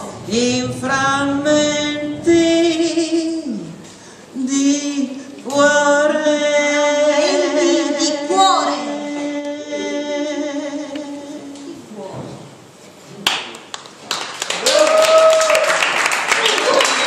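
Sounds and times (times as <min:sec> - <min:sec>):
two voices singing in harmony: 0:00.0 - 0:11.9.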